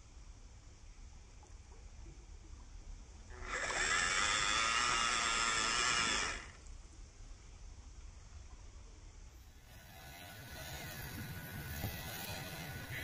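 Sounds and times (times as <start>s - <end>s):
toy car electric motor whining: 3.3s - 6.6s, 9.8s - 13.0s.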